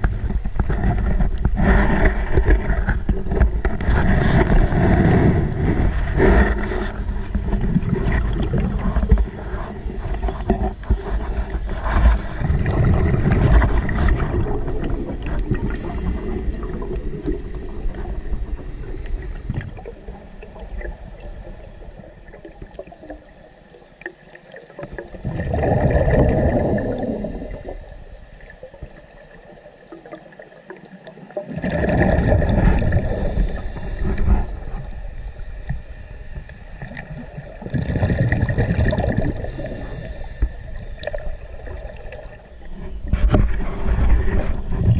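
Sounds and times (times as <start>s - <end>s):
underwater bubbles gurgling: 0.0s - 44.9s
bursts of exhaled bubbles: 11.9s - 18.4s, 25.1s - 27.7s, 31.4s - 33.6s, 36.8s - 39.7s.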